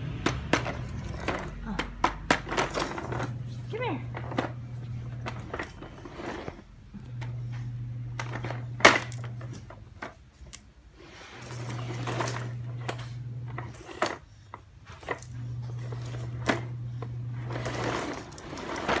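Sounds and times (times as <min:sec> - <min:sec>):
low steady hum: 0:00.0 - 0:19.0
plastic toy knocking on tile floor: 0:00.1 - 0:03.3.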